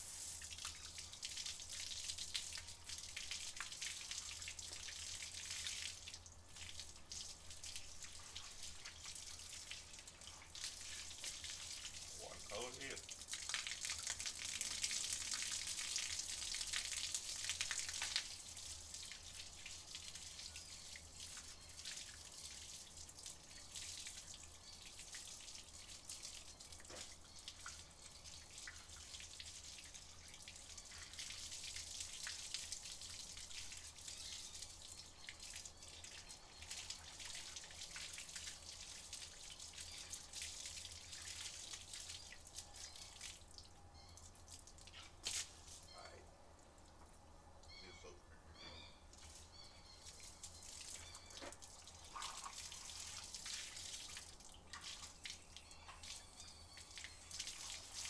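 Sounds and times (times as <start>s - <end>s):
hose water splashing: 0.0s - 20.4s, 49.2s - 56.2s
water dripping: 0.4s - 47.9s, 49.0s - 58.0s.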